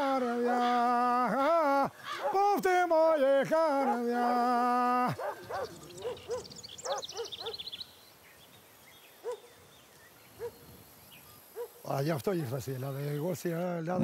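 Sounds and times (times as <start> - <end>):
man singing unaccompanied: 0.0 - 6.2.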